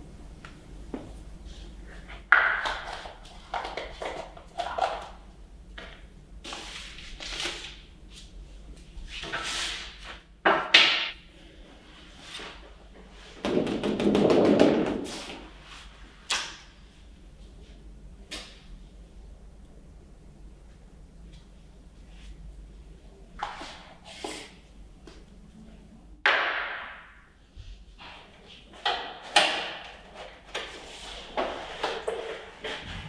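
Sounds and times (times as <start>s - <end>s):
paper sheets rustling: 6.4s - 8.3s.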